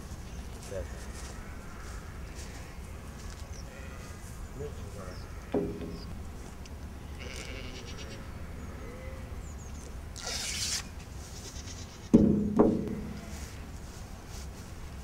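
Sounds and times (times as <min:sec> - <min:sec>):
sheep bleating: 0:07.0 - 0:09.2.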